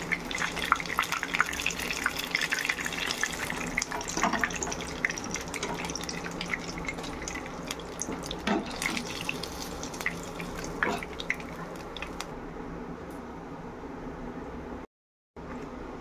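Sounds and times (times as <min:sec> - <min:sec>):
fish sizzling in hot oil: 0:00.0 - 0:12.3.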